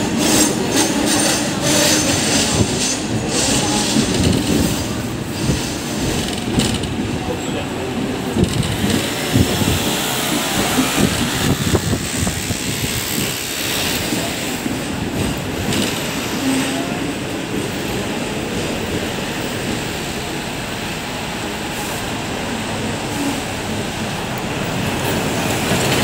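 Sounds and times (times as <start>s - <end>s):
tram wheels running on rails: 0.0s - 26.0s.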